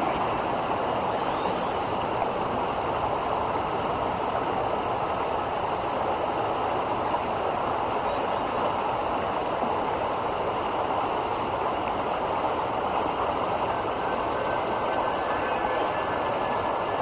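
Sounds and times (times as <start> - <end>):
river rushing over riffle: 0.0 - 17.0
faint bird chirp: 1.1 - 1.8, 8.0 - 8.8.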